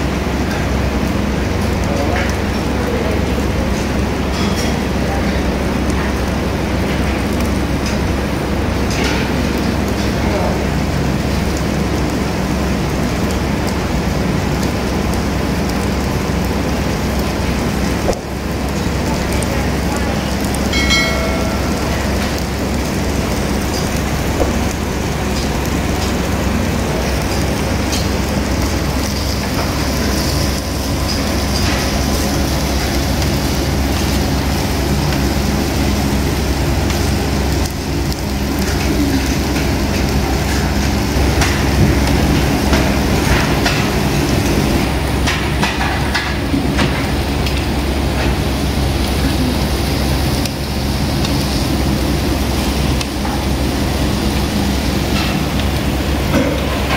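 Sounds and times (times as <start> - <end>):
meat sizzling on a grill: 0.0 - 56.9
low steady hum: 5.0 - 56.9.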